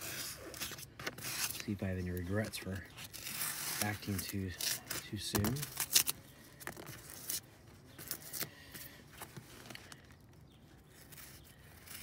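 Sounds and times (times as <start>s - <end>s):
knife scratching through foam: 0.0s - 6.2s, 10.8s - 12.0s.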